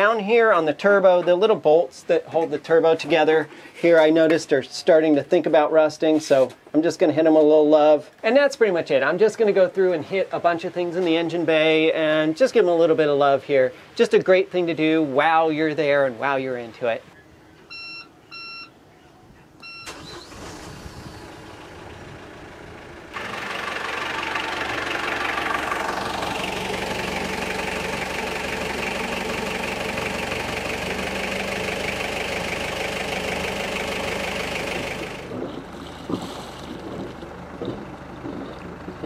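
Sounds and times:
control panel beeps: 17.7 - 18.7, 19.6 - 19.9
diesel engine running: 19.9 - 39.0.

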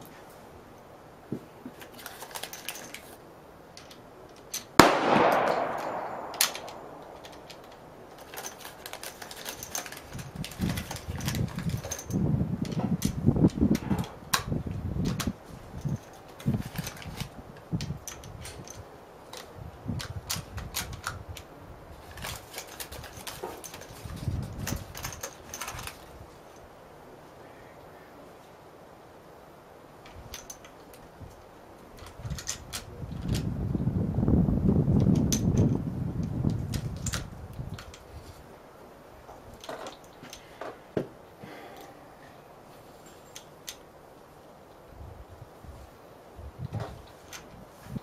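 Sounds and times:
rifle bolt clicking and rattling: 1.8 - 26.2, 30.0 - 33.5, 35.0 - 38.1, 43.3 - 43.9
echoing gunshot: 4.8 - 7.2.

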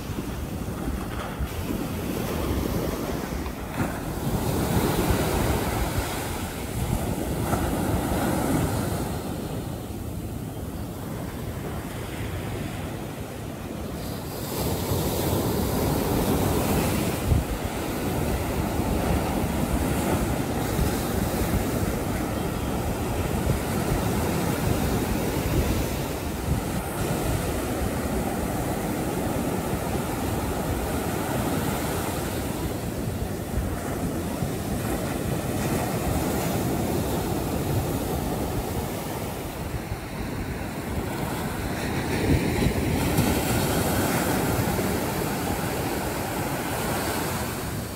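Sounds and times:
ocean surf breaking: 0.0 - 47.9
wind buffeting microphone: 0.0 - 47.9.

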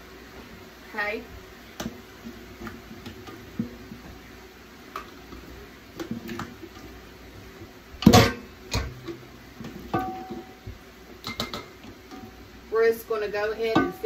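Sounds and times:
spoon clanking on pot: 8.0 - 12.4, 13.6 - 14.0.

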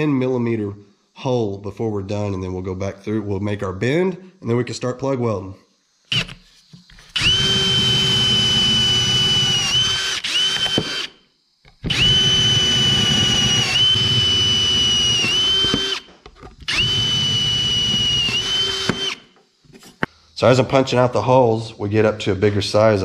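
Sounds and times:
power drill whining through metal: 6.1 - 19.4.

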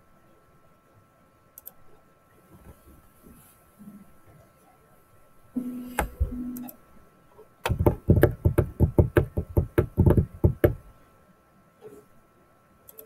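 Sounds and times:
low hum: 5.6 - 7.0
rapid sharp knocks: 7.7 - 10.9.

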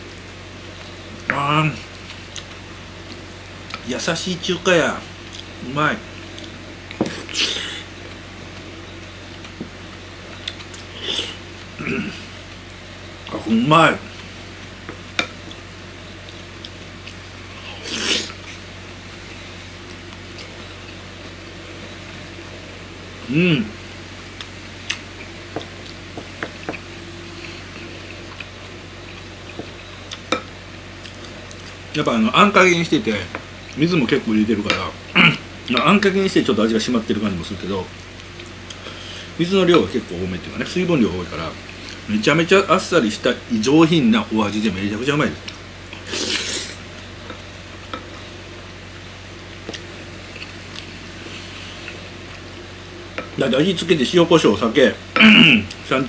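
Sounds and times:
low room hum: 0.0 - 56.0
wet eating sounds: 45.4 - 48.1.

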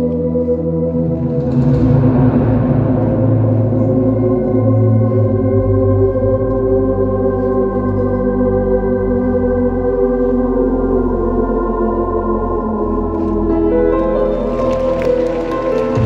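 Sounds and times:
slow music over loudspeakers: 0.0 - 16.0.

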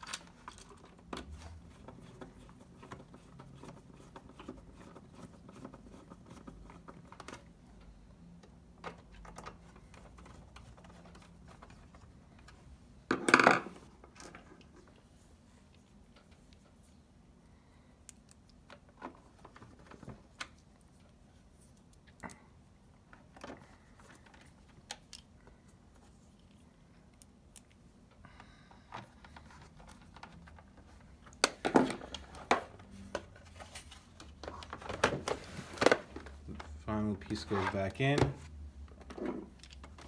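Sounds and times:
plastic cover clattering and snapping: 34.2 - 36.8.

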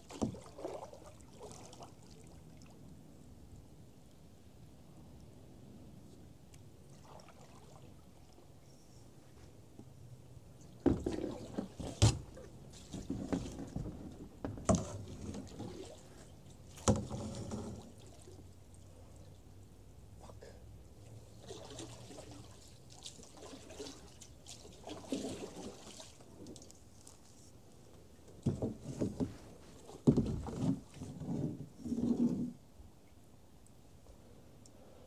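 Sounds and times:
paddle strokes splashing in water: 0.0 - 2.4, 6.9 - 8.3, 10.8 - 18.6, 21.2 - 27.3.

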